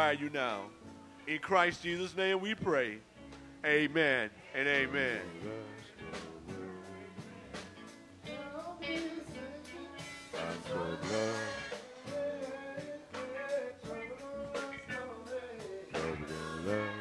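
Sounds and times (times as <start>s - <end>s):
gospel band music: 0.0s - 17.0s
person singing: 3.6s - 17.0s
drums: 4.8s - 17.0s.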